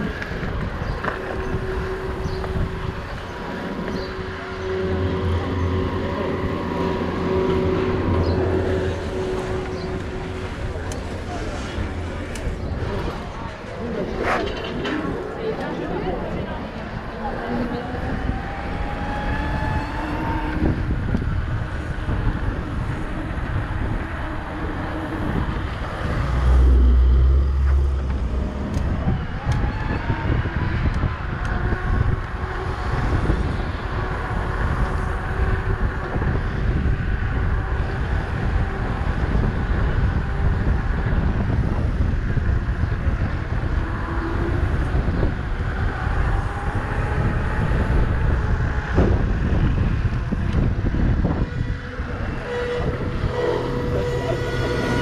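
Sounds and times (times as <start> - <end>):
tyres rolling on asphalt: 0.0 - 55.0
wind on microphone: 0.0 - 55.0
electric motor whine: 30.7 - 55.0.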